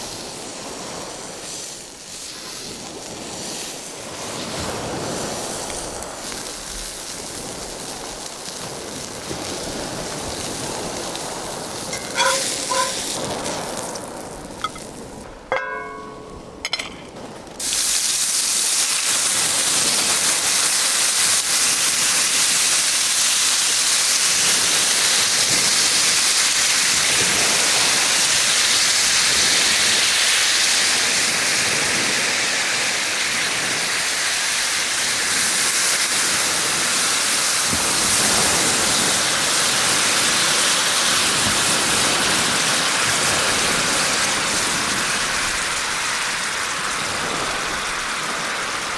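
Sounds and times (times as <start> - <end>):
liquid sizzling in hot skillet: 0.0 - 4.6, 5.2 - 16.2, 17.6 - 31.6
surf on shingle beach: 0.0 - 48.9
wind: 0.0 - 48.9
light clinks: 11.9 - 13.0.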